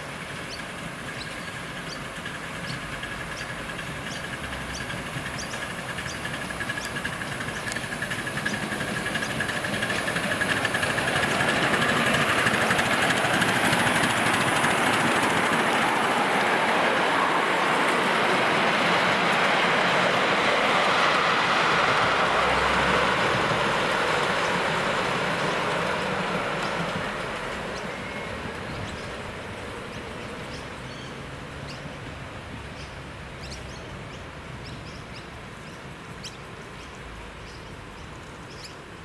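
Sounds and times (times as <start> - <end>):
model steam train rolling on track: 0.0 - 36.6.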